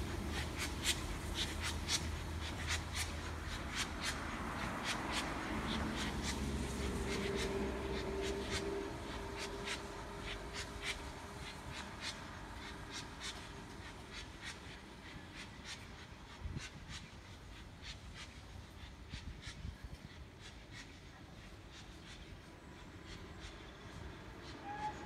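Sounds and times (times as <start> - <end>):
steam locomotive chuffing: 0.0 - 25.0.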